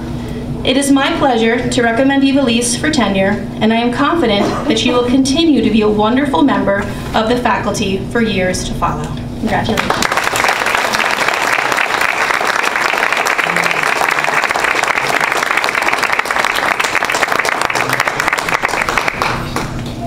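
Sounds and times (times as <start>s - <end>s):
audience applauding: 9.8s - 20.0s.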